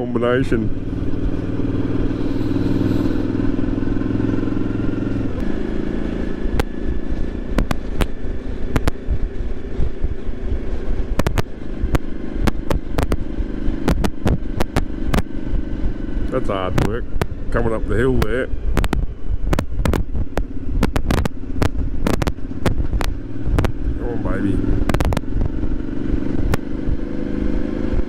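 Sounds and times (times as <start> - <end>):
motorcycle engine running: 0.0 - 28.0
wind and road noise: 0.0 - 28.0
sharp clicks: 11.2 - 15.4, 16.7 - 17.4, 18.2 - 23.8, 24.8 - 26.7.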